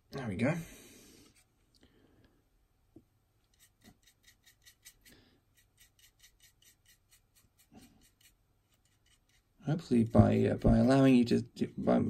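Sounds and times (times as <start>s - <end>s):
paintbrush scrubbing on plastic: 3.5s - 11.2s.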